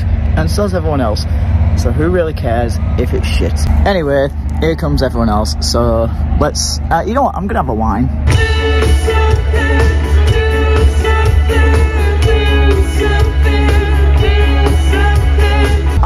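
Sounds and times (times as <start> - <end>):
music with heavy bass beat: 8.1 - 16.0.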